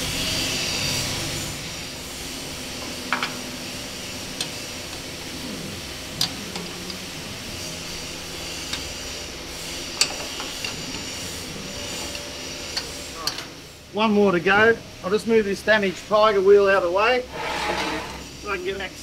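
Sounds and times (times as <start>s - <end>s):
steady background hum: 0.0s - 19.0s
spanner clicking on metal nut: 10.0s - 11.1s.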